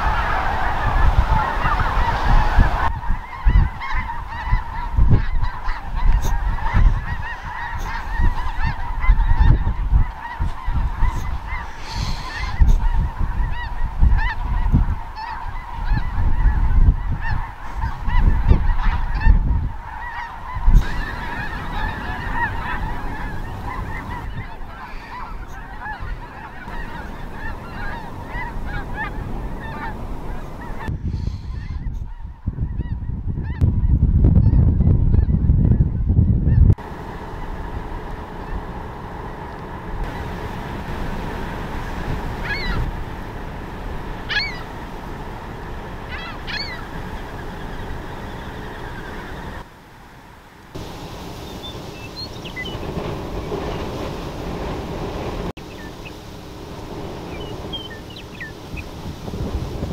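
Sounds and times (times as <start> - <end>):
snow geese honking in flight: 0.0 - 35.8, 36.4 - 59.9
low rumbling gusts: 0.0 - 59.9.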